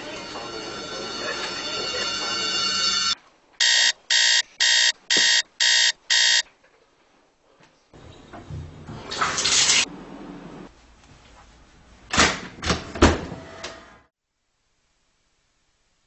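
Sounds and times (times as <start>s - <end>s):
shower water spraying: 9.0s - 9.9s.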